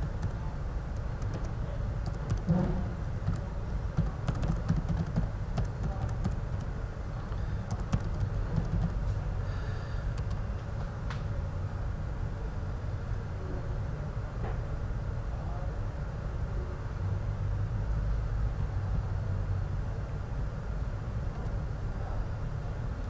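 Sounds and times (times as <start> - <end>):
steady low rumble: 0.0 - 13.4
keyboard key clicks: 1.2 - 2.5, 3.2 - 6.7, 7.7 - 9.0.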